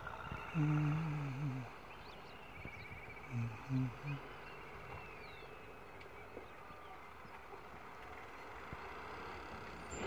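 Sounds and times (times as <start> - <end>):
faint outdoor background: 0.0 - 10.0
short low vocal sounds: 0.4 - 1.8, 3.3 - 4.2.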